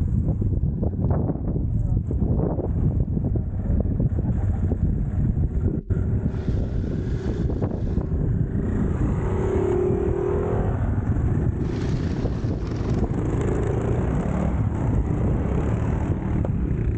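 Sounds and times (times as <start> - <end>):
motorcycle engines: 0.0 - 16.9
wind rumble on microphone: 0.0 - 16.9
dirt bike passing by: 3.7 - 16.9.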